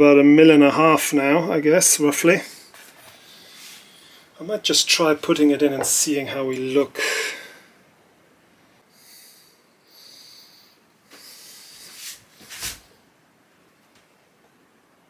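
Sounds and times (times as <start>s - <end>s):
person breathing through nose: 2.5s - 4.4s, 8.9s - 12.2s.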